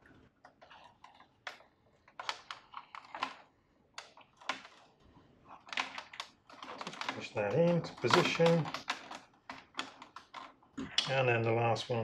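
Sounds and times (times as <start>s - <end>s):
plastic tubes clicking and tapping: 0.4s - 4.9s, 5.6s - 12.0s.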